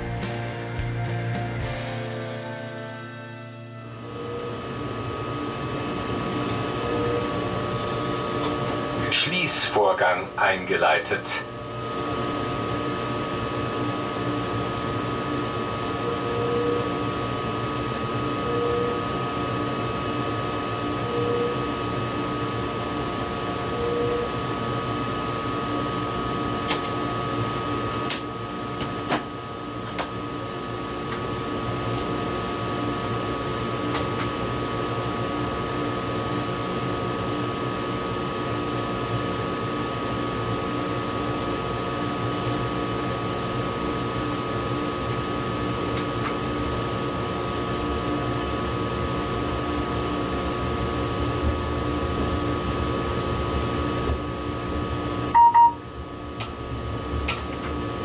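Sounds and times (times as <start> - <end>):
electrical hum: 0.0 - 58.0
ventilation whir: 0.0 - 58.0
short beeps: 55.3 - 55.8.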